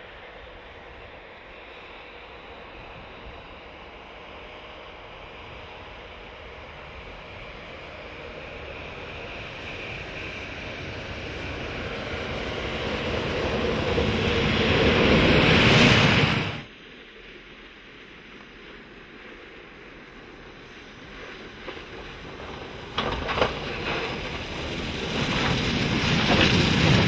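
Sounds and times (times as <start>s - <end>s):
tractor engine: 22.0s - 27.0s.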